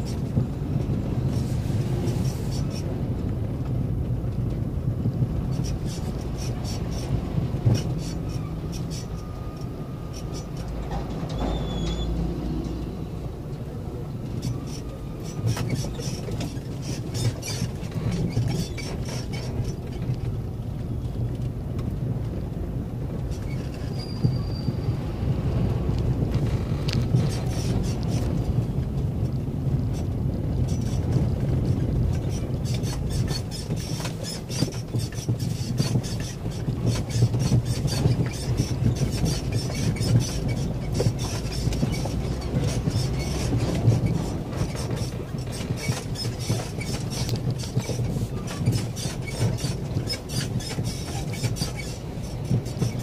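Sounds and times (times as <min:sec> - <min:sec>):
vehicle engine and tyres rumbling: 0:00.0 - 0:53.0
short high squeaks: 0:05.5 - 0:12.8, 0:23.3 - 0:25.0, 0:32.2 - 0:53.0.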